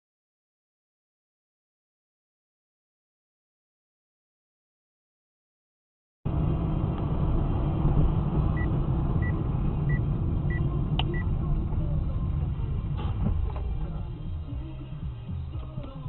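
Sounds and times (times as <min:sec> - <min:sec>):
car rumbling on the move: 0:06.3 - 0:16.0.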